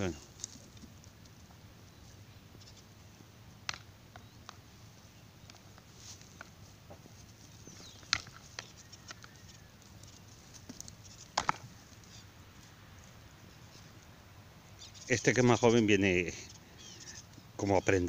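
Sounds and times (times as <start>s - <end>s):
goat horns cracking together: 7.7s - 13.2s.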